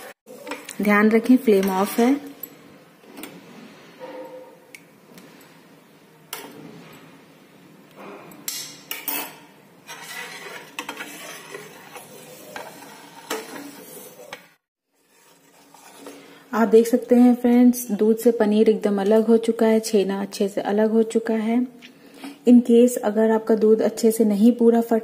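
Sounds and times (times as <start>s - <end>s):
spoon scraping a steel pot: 8.9s - 16.4s.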